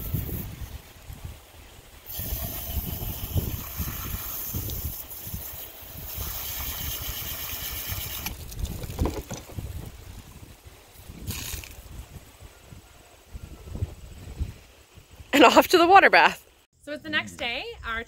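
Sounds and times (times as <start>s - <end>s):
wind rumble on microphone: 0.0s - 15.3s
hose nozzle spraying water: 2.1s - 8.6s, 11.2s - 11.9s.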